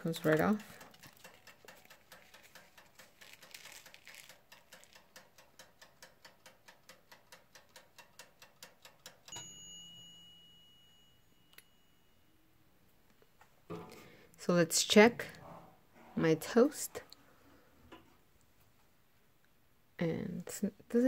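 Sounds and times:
timer ticking: 0:00.0 - 0:10.3
timer bell ding: 0:09.3 - 0:12.5.

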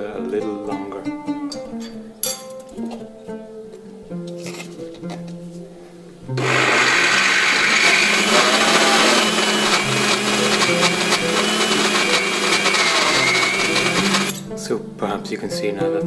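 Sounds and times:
electric spice grinder motor: 0:06.4 - 0:14.4.

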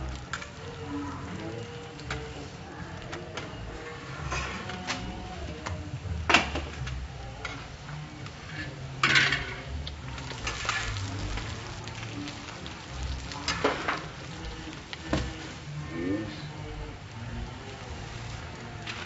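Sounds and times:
food sizzling on griddle: 0:00.0 - 0:19.0
metal utensils clattering: 0:08.4 - 0:12.1.

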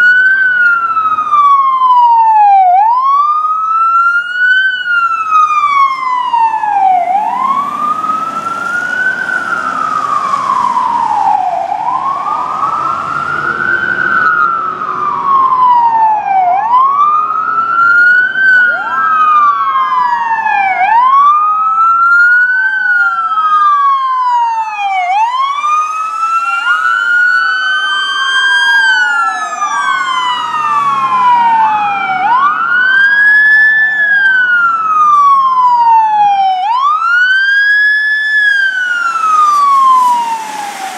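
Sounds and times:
fire truck sirens wailing: 0:00.0 - 0:40.9
truck engines rumbling: 0:00.0 - 0:40.9.

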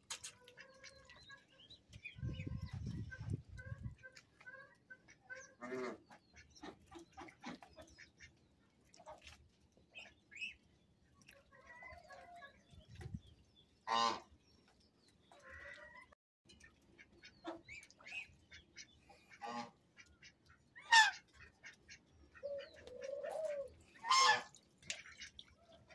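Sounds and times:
ducks and geese calling: 0:13.9 - 0:14.3, 0:15.3 - 0:25.9.

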